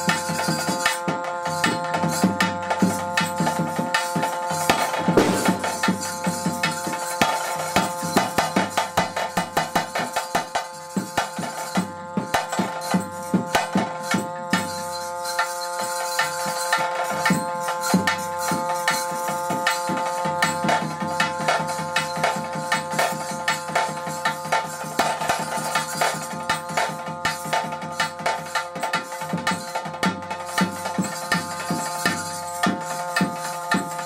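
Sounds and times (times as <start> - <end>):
drums beaten in quick strokes: 0.0 - 34.0
steady held tone: 4.2 - 8.4.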